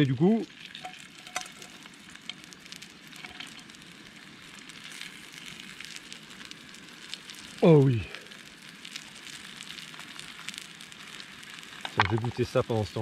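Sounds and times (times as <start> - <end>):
steady hiss: 0.0 - 13.0
tortilla sizzling and crackling in pan: 0.0 - 13.0.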